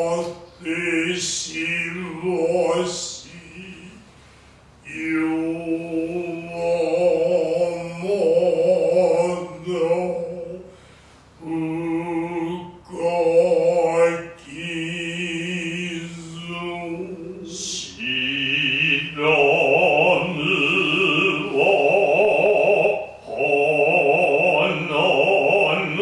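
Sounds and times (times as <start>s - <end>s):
steady high tone: 15.6s - 26.0s
voices chanting: 15.7s - 26.0s.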